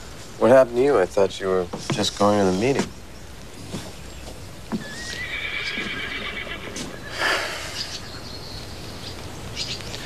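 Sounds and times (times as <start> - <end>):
horse whinnying: 4.8 - 8.0
horse breathy blow: 7.0 - 7.9.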